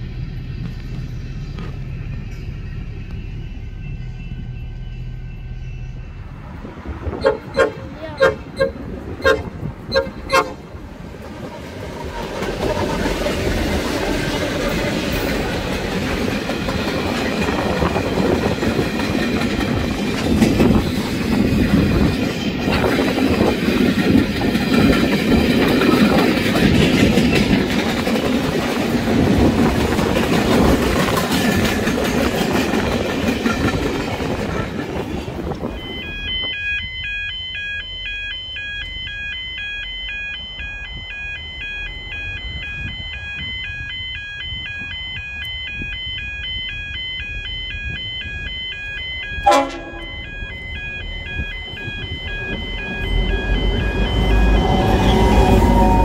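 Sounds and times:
freight train wagons rumbling: 0:00.0 - 0:38.5, 0:47.2 - 0:56.0
loud train horn blast: 0:07.2 - 0:10.6, 0:49.4 - 0:50.2, 0:54.7 - 0:56.0
electronic chiming: 0:35.7 - 0:55.2.

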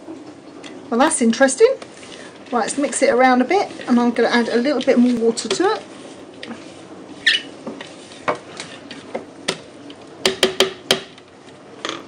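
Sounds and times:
spatula scraping plastic bowl: 0:01.4 - 0:09.3.

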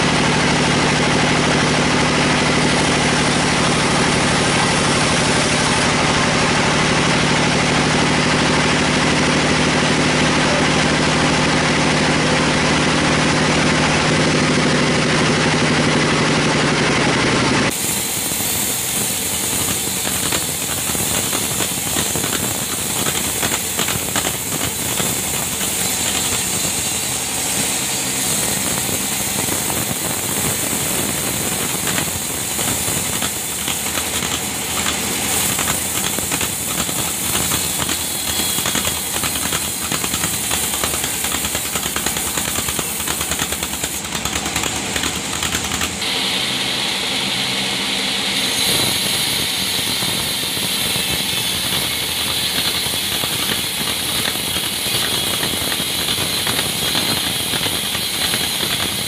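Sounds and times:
sawmill mechanical drone: 0:00.0 - 0:59.0
saw blade hissing in wood: 0:17.7 - 0:59.0.

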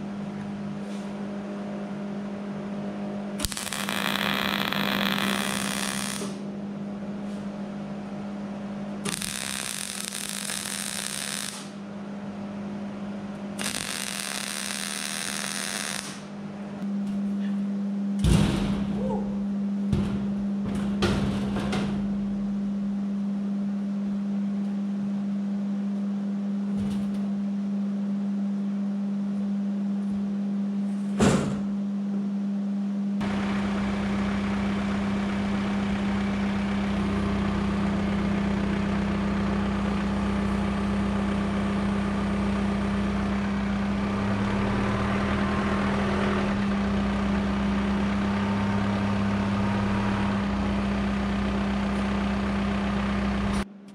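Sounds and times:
tractor diesel engine running: 0:33.2 - 0:53.6.

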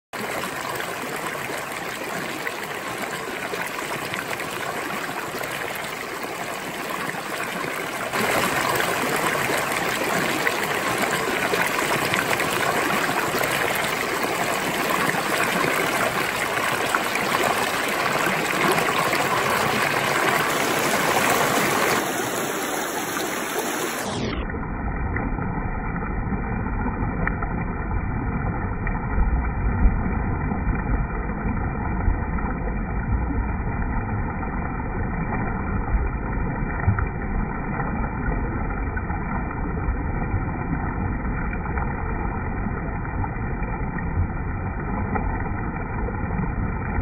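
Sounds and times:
stream rushing over rocks: 0:00.2 - 0:24.4.

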